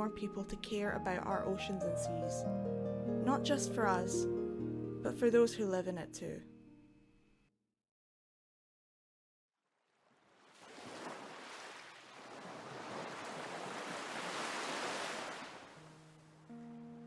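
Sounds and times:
soft sustained musical notes: 0.0 - 6.9, 15.8 - 17.0
waves washing in: 10.2 - 15.9.

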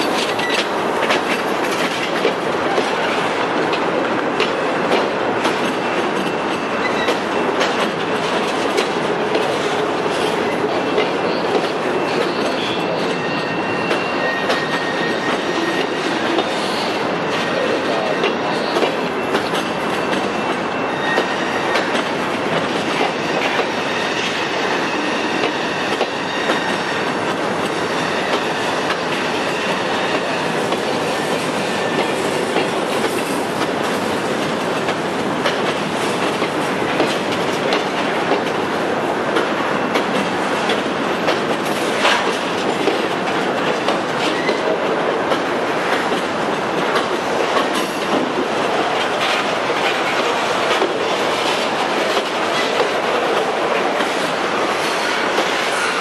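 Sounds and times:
train wheels clacking over rail joints: 0.0 - 13.2, 13.8 - 38.7, 39.3 - 56.0.

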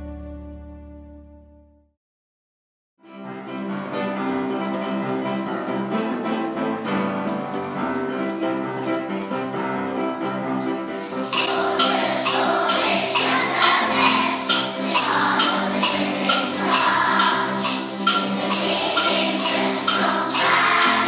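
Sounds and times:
held keyboard chord: 3.7 - 21.0
brisk percussion beat: 11.0 - 21.0.

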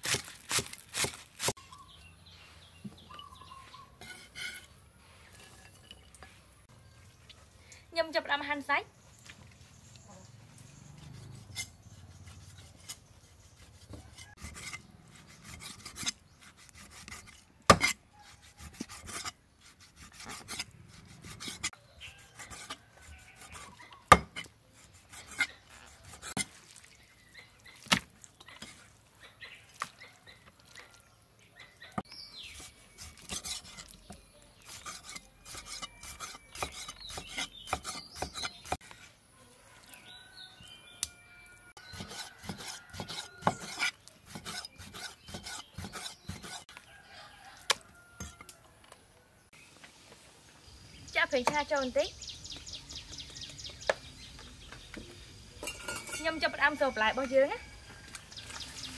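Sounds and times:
loud cleaver chops: 0.0 - 1.6
knife rasping through meat: 11.0 - 23.9, 24.7 - 26.6, 32.5 - 34.0, 34.6 - 38.9, 41.8 - 46.7.

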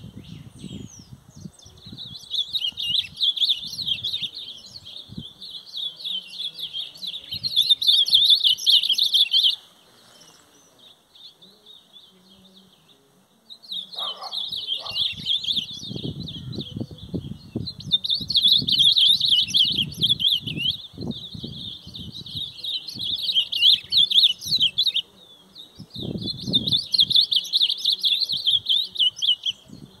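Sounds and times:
songbirds twittering: 0.0 - 30.0.

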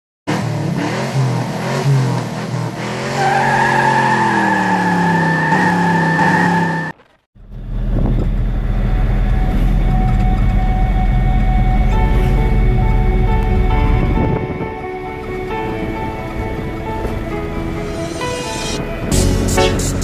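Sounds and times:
tyre squeal: 3.1 - 7.0
diesel engine rumble inside cab: 7.4 - 14.4.

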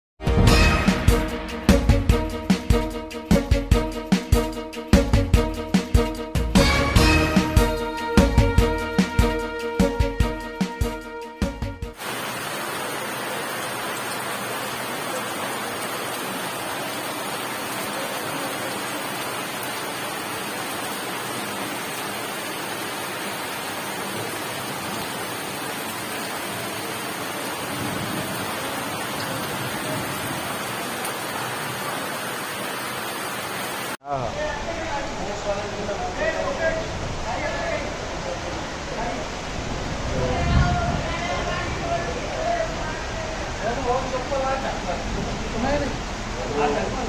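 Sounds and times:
heavy rain pouring: 11.9 - 47.0.

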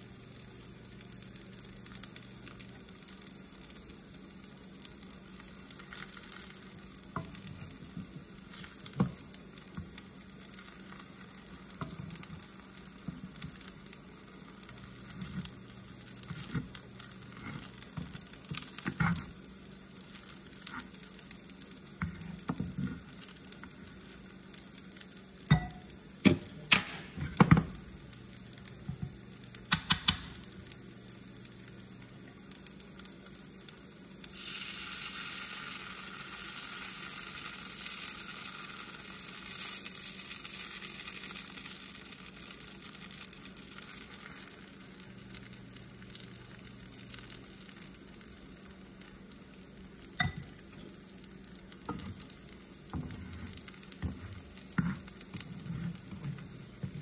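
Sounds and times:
batter sizzling in oil: 0.0 - 57.0
spatula clicking against pan: 29.7 - 30.4.

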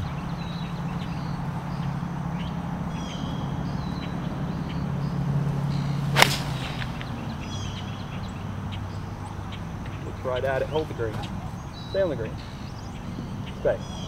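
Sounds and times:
golf club striking ball: 5.6 - 8.2.

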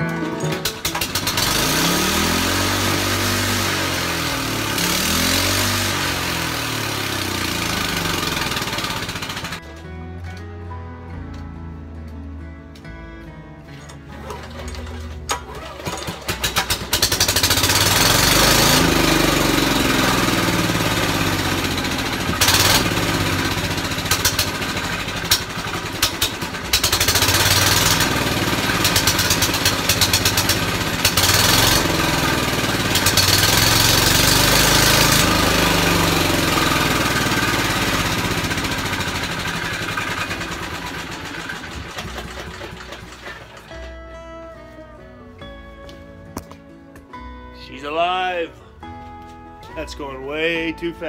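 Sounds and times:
small engine pull-started and running: 0.0 - 9.8, 13.7 - 44.0
belt and wheels turning: 6.7 - 9.6, 13.7 - 43.9.

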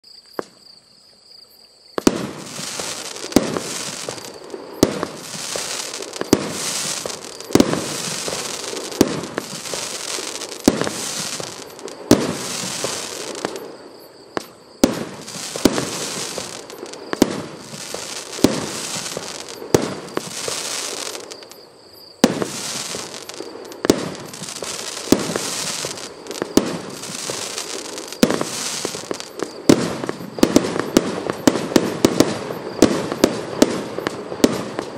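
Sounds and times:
firework burst hiss: 2.0 - 13.8, 14.8 - 21.6, 22.2 - 34.8.

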